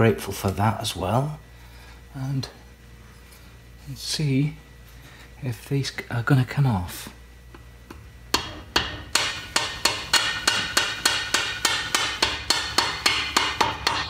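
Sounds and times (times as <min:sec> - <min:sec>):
hammer striking metal spanner: 0:08.3 - 0:14.0.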